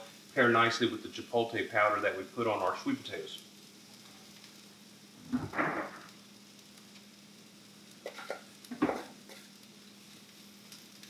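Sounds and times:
food sizzling in a skillet: 0.0s - 11.0s
bowl knocking on skillet: 8.0s - 9.4s.

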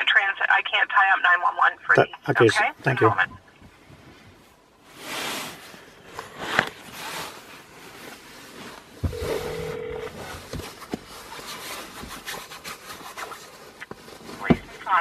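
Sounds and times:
steady telephone tone: 9.1s - 10.3s.

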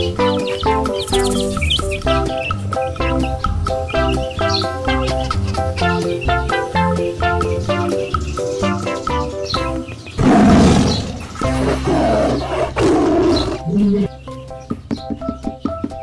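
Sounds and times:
plucked background music: 0.0s - 16.0s
lion roaring: 10.2s - 14.1s.

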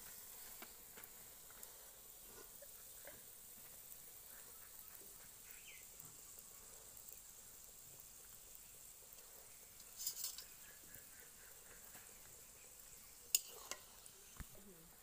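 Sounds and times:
frying in hot oil sizzle: 0.0s - 15.0s
oil crackling: 0.0s - 15.0s.

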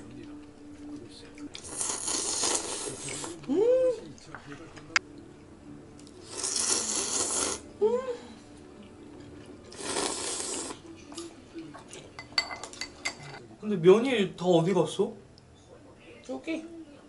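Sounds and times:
person slurping noodles: 1.6s - 3.3s, 6.2s - 7.6s, 9.7s - 10.8s.

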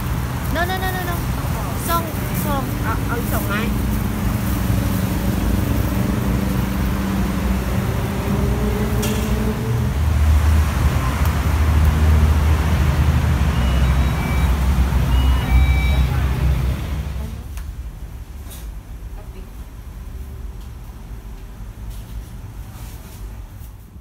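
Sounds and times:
steady engine hum: 0.0s - 22.8s
heavy low vehicle rumble: 0.0s - 23.6s
short electronic beeps: 13.5s - 16.3s.

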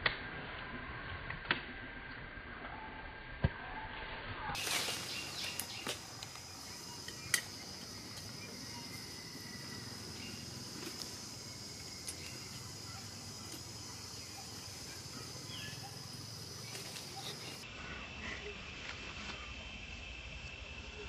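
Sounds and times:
insect chorus droning: 4.5s - 21.0s.

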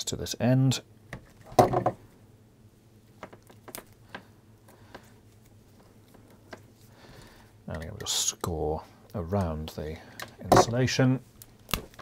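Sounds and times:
faint clicks and taps: 7.7s - 9.6s.

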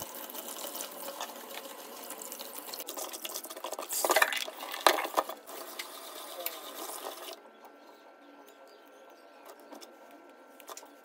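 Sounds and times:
tap water running: 0.0s - 7.4s
water splashing in colander: 0.0s - 7.4s.

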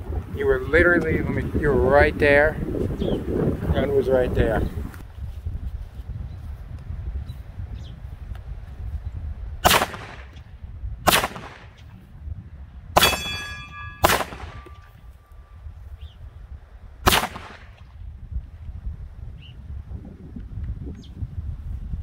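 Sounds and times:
pistol shots: 9.6s - 10.4s, 11.1s - 11.8s, 13.0s - 14.9s, 17.1s - 17.8s
metallic ringing tone: 13.0s - 15.6s.

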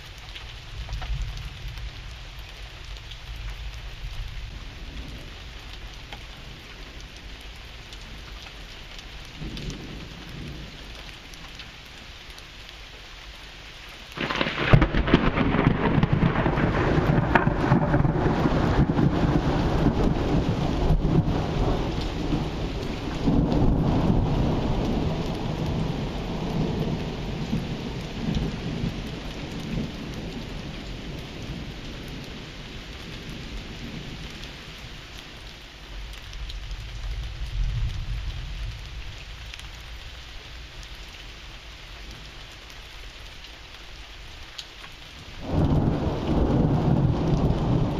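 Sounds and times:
steady rain: 0.0s - 47.9s
loud thunderclap: 14.2s - 30.4s, 45.4s - 47.9s
thunder rumbling: 14.2s - 34.4s, 45.4s - 47.9s.

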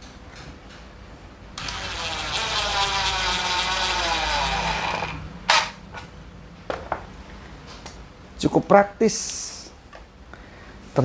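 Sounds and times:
impact driver whining: 1.6s - 5.8s.

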